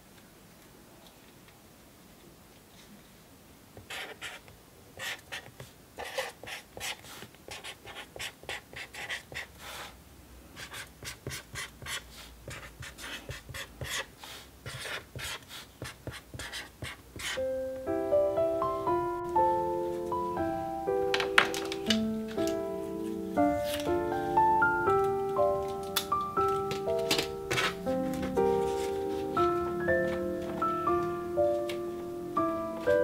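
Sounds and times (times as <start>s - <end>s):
pen scratching on paper: 3.8s - 4.4s, 5.0s - 9.5s, 10.6s - 14.1s, 14.7s - 17.4s
piano music: 17.2s - 33.0s.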